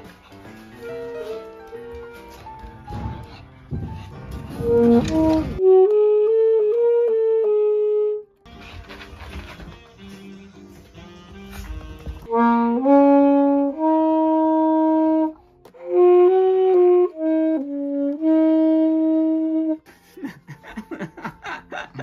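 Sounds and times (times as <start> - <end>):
saxophone playing slow melody: 4.6 - 8.4, 12.2 - 19.8.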